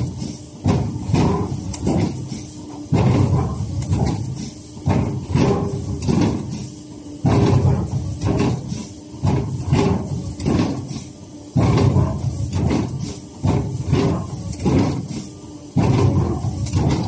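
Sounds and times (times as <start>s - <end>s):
machine knocks and sliding strokes: 0.0s - 17.0s
stripping machine heavy thumps: 0.0s - 17.0s.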